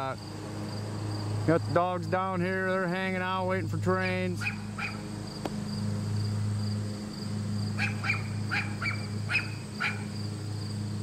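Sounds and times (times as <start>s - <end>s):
small dogs barking: 4.0s - 5.1s, 7.8s - 10.2s.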